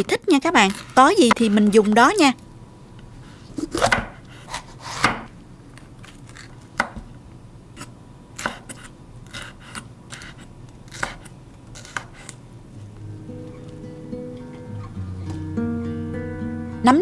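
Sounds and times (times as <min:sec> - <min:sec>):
knife cutting on wooden board: 0:03.6 - 0:05.3, 0:07.8 - 0:12.4.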